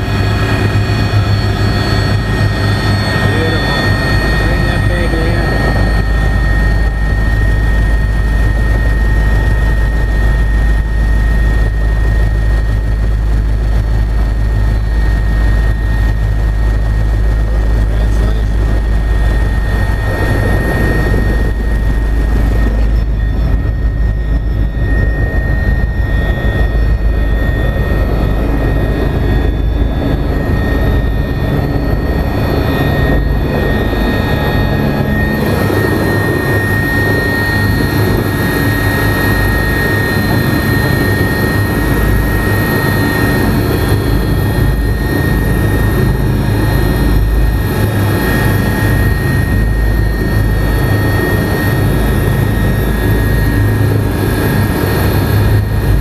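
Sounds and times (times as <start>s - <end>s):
helicopter engine drone: 0.0s - 56.0s
helicopter high whine: 0.0s - 56.0s.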